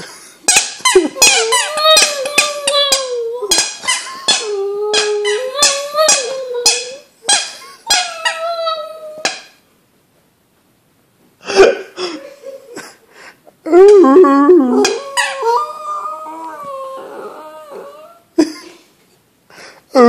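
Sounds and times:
small dog whining: 0.9s - 7.1s, 7.9s - 9.5s, 13.7s - 18.2s.

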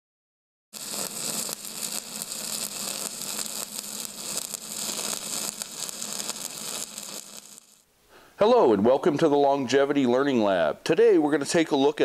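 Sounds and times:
crackling hiss of welding arc: 0.8s - 7.9s.

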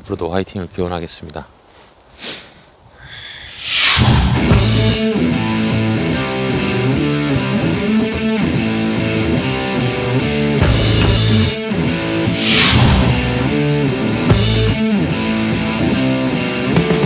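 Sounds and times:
bright crash-like noise: 3.6s - 5.0s, 12.4s - 13.6s
guitar rock music: 4.1s - 17.0s.

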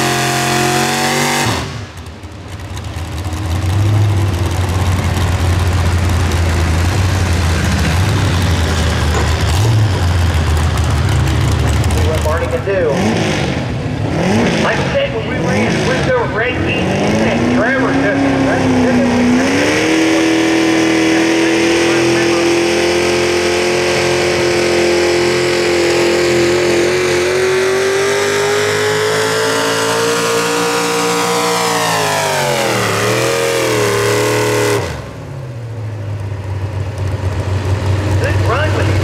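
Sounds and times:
tractor engine revving: 0.0s - 39.0s
engine idling: 1.6s - 14.0s, 35.0s - 39.0s.

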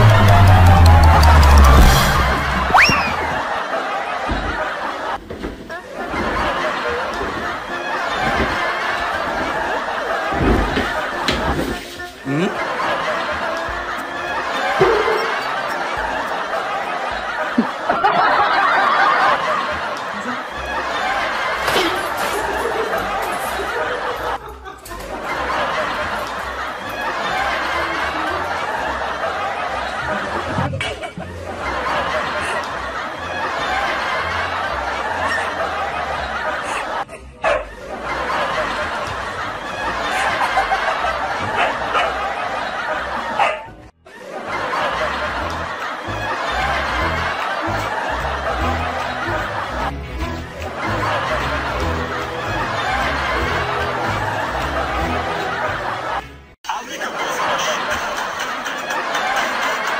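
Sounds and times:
canned laugh track: 12.2s - 59.9s.

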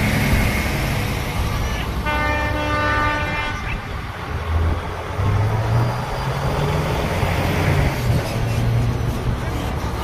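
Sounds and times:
heavy truck engine rumbling: 0.0s - 10.0s
truck air horn blast: 1.6s - 3.8s.

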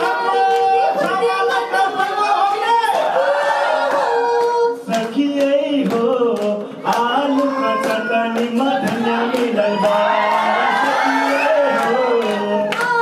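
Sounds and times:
man singing: 4.2s - 13.0s
woman singing: 6.9s - 13.0s.

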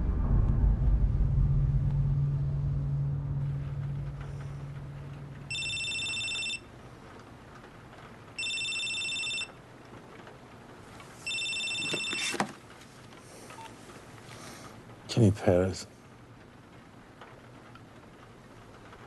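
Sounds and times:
electronic telephone ringing: 5.5s - 6.7s, 8.4s - 9.6s, 11.2s - 12.4s
phone picked up clunk: 11.3s - 12.6s.

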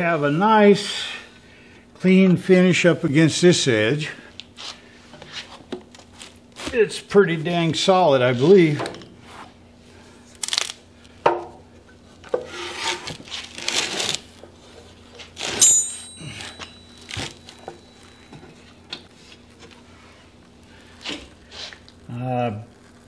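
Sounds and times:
ringing metallic clank: 15.4s - 18.6s.

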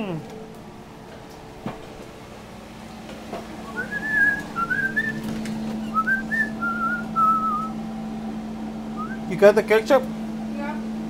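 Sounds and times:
low hum: 0.0s - 11.0s
person whistling a tune: 3.7s - 5.2s, 5.8s - 7.7s, 9.0s - 9.2s.

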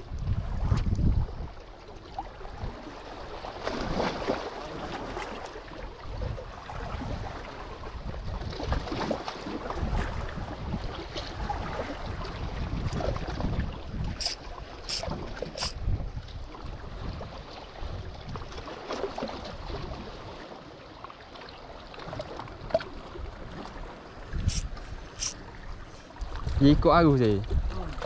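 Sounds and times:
wind buffeting microphone: 0.0s - 1.6s, 5.9s - 18.6s, 23.2s - 28.0s
sea water lapping on rocks: 0.0s - 28.0s
fishing reel clicks: 14.2s - 15.8s, 24.5s - 25.4s.

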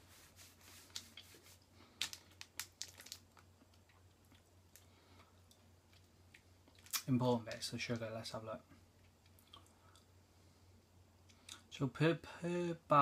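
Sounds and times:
foil wrapper crinkling: 0.7s - 3.5s.

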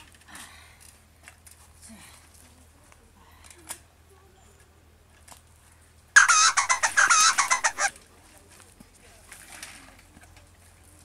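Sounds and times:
chicken cackling: 6.2s - 7.9s.

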